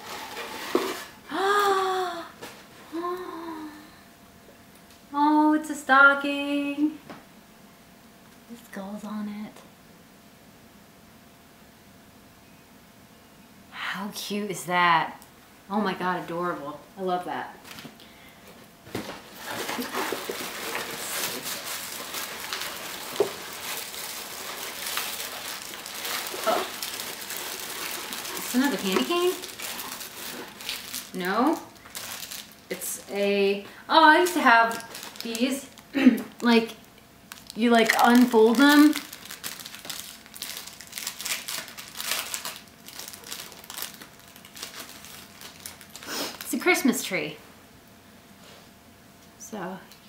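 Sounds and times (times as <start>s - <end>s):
paper rustling and crinkling: 18.9s - 33.1s, 34.1s - 35.8s, 37.3s - 46.5s.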